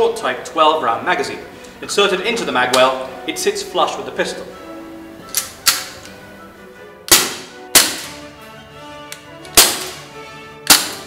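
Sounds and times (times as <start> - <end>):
airsoft pistol shots: 7.1 - 8.2, 9.6 - 10.0, 10.7 - 11.0.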